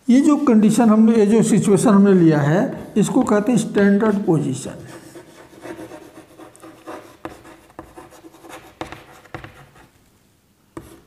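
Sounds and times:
chalk scratching on chalkboard: 2.7 - 10.0, 10.8 - 11.0
chalk tapping: 2.7 - 10.0, 10.7 - 11.0.

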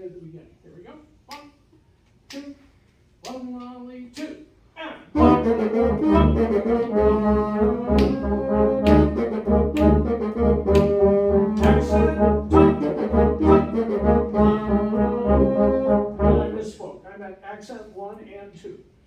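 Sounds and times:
tuba pulsing bass: 5.1 - 16.8
brass and woodwind trio playing: 5.1 - 16.9.

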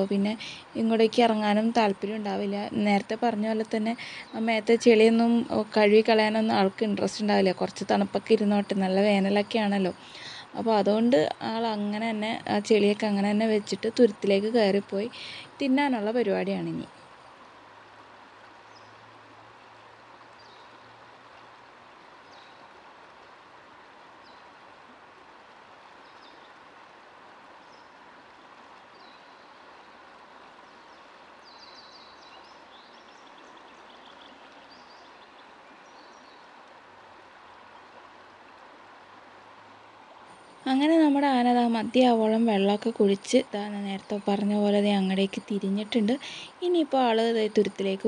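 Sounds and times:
river water rushing over rocks: 16.6 - 42.0.

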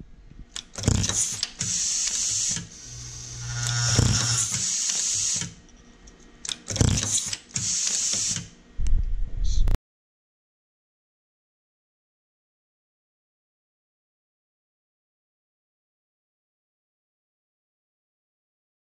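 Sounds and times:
compressed-air hiss: 1.1 - 3.4, 4.0 - 5.6, 7.0 - 8.5
low hum of bowl feeder: 2.7 - 4.7.

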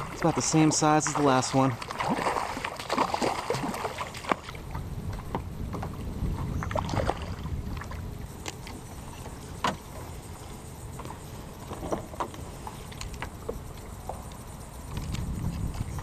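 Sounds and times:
fish splashing at the surface: 0.0 - 4.6, 6.7 - 8.0.

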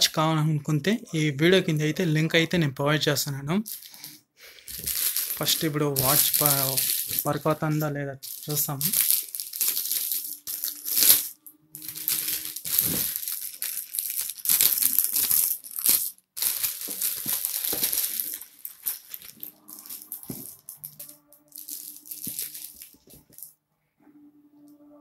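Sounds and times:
plastic wrapping crinkling: 3.6 - 23.5.

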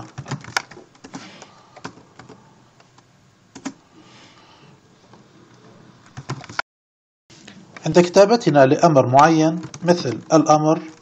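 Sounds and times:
computer keyboard typing: 0.0 - 2.4, 3.5 - 3.8, 6.1 - 6.6, 9.6 - 11.0.

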